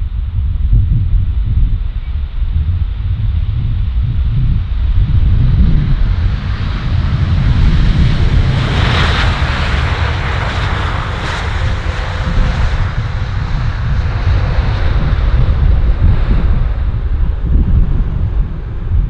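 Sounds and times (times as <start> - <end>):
jet airliner passing: 0.0 - 19.0
wind rumble on microphone: 0.0 - 19.0.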